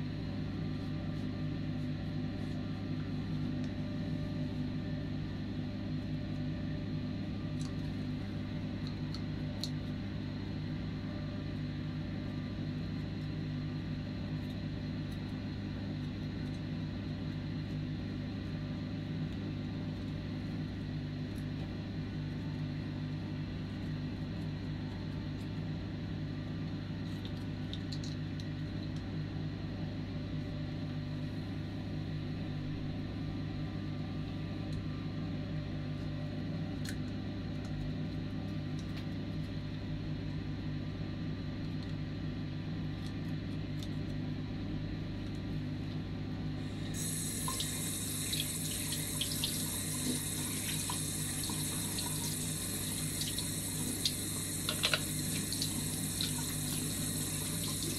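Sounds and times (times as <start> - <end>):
tap water running into sink: 47.0 - 57.9.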